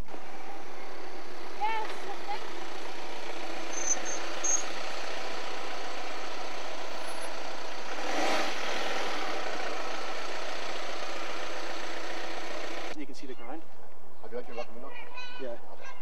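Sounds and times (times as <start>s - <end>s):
van engine running: 0.0s - 13.0s
high squeaks: 3.7s - 4.7s.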